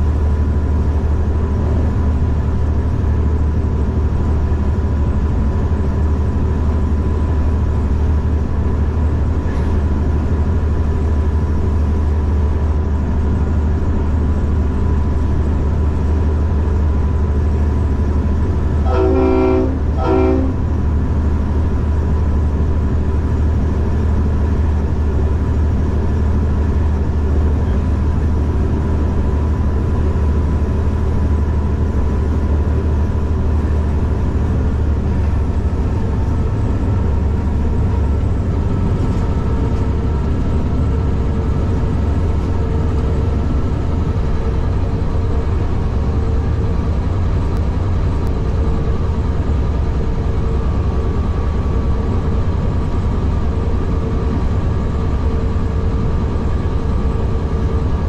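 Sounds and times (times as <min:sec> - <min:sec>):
diesel locomotive engine running: 0:00.0 - 0:58.0
locomotive horn blasts: 0:18.8 - 0:20.8.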